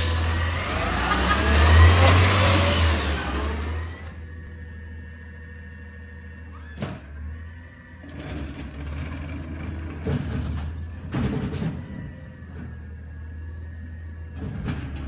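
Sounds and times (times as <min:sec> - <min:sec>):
cart banging against hopper: 0:00.0 - 0:04.1, 0:08.8 - 0:12.8, 0:14.3 - 0:15.0
garbage truck engine humming: 0:00.0 - 0:15.0.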